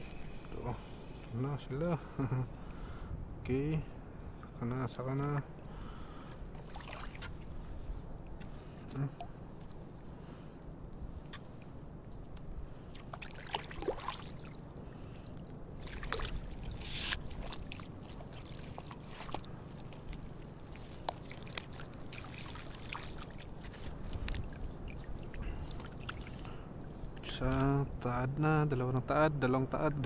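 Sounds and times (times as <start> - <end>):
water sloshing and splashing: 5.2 - 27.7.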